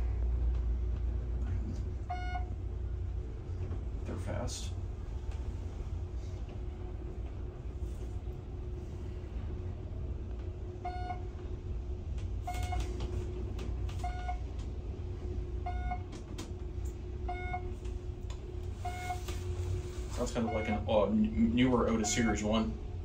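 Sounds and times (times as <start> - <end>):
elevator car rumbling: 0.0 - 23.0
short electronic beeps: 2.1 - 2.5, 10.8 - 11.2, 12.5 - 12.9, 14.0 - 14.4, 15.7 - 16.0, 17.3 - 17.7, 18.8 - 19.3, 20.2 - 20.9.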